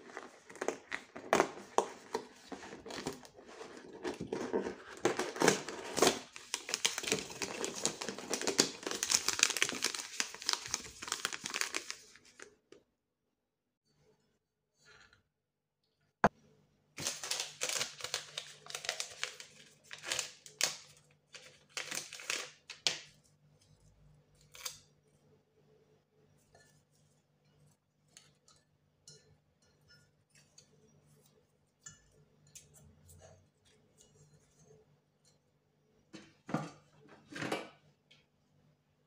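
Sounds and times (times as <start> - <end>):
paper packaging crinkling: 0.0 - 12.5, 17.0 - 23.1.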